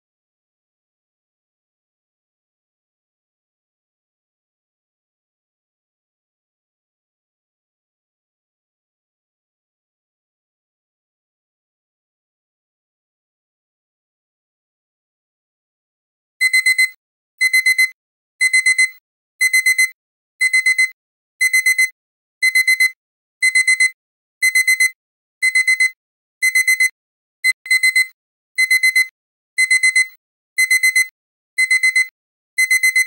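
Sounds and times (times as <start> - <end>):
alarm clock beeping: 16.4 - 33.0.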